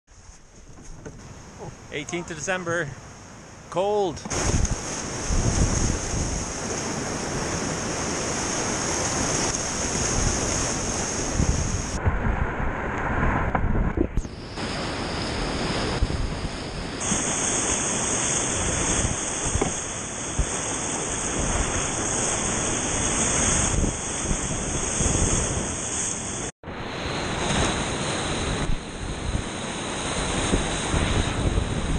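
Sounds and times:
whitewater rushing: 1.3 - 12.0, 14.2 - 26.5.

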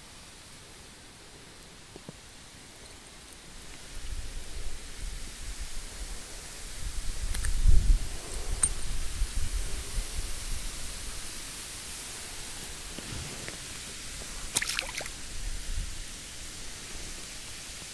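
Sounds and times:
steady outdoor hiss: 0.0 - 17.9
fish splashing into water: 14.5 - 15.2.

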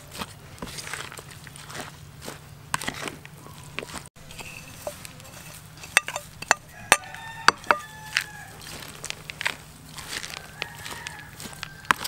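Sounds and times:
spoon stirring salad in basin: 3.9 - 8.8
sharp clinks and taps: 5.8 - 8.0.

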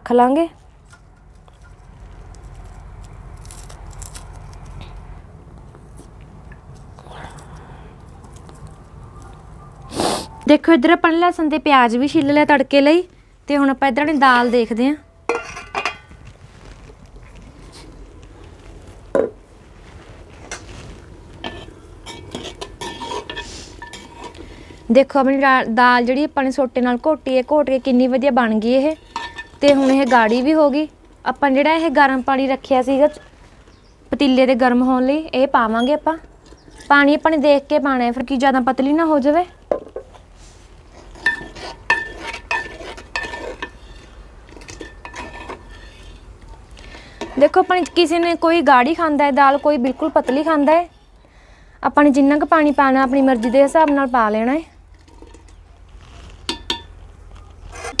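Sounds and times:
ladle clinking in metal pot: 15.3 - 16.1, 29.0 - 30.3
metal ladle clinking in pot: 15.3 - 16.1.

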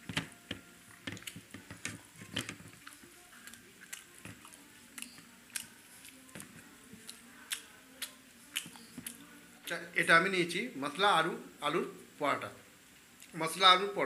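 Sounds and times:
man chewing soft food: 0.9 - 1.7, 2.5 - 9.8.

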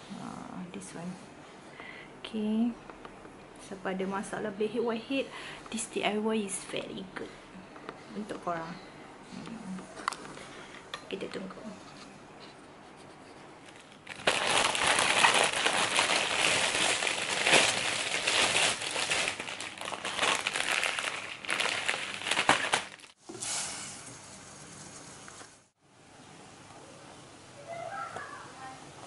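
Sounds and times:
plastic packets crinkling: 13.7 - 23.2.

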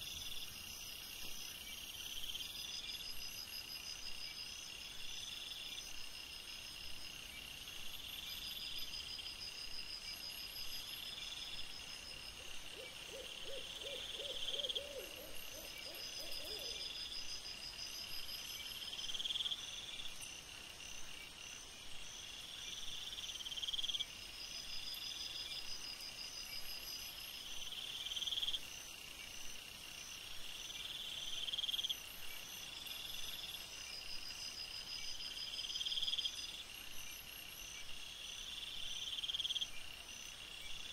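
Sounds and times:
crickets trilling: 7.1 - 40.9
pulsing insect chirps: 10.1 - 20.5.

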